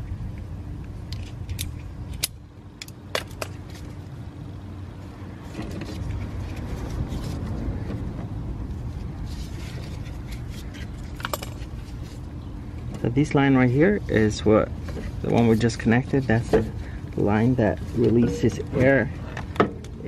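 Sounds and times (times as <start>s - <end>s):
steady low rumble: 0.0s - 20.0s
metallic clicks and scraping: 1.1s - 4.0s, 9.2s - 13.1s.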